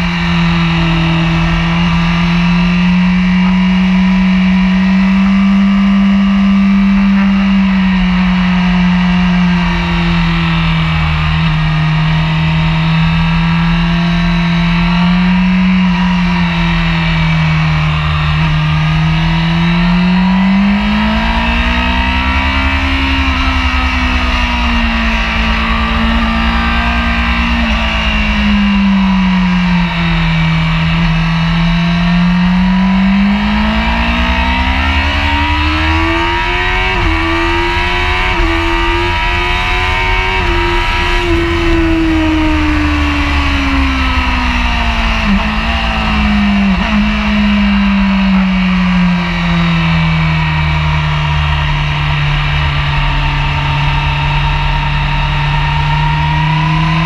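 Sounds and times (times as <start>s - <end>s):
motorcycle engine running hard: 0.0s - 57.0s
wind rush: 21.1s - 31.7s, 33.6s - 50.1s.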